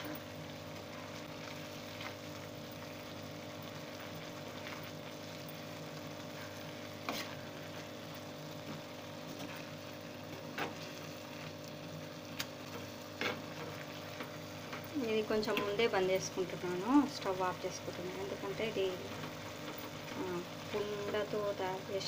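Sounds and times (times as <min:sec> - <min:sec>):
thick food simmering and sizzling: 0:00.0 - 0:22.0.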